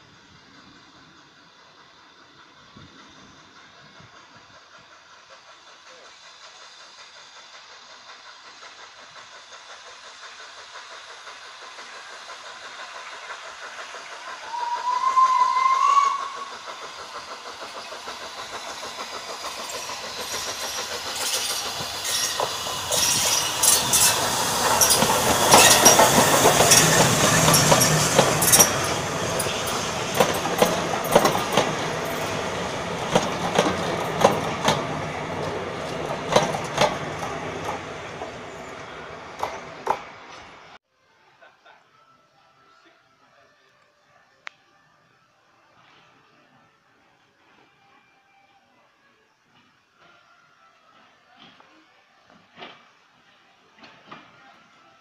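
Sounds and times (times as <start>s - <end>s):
steam locomotive passing: 0.0s - 55.0s
train wheels clicking on rail joints: 0.5s - 40.8s, 50.9s - 54.6s
steam whistle blast: 14.4s - 16.7s.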